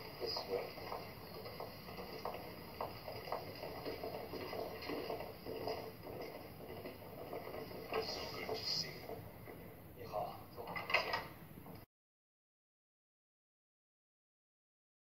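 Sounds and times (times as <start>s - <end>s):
footsteps on hard floor: 0.0s - 8.4s.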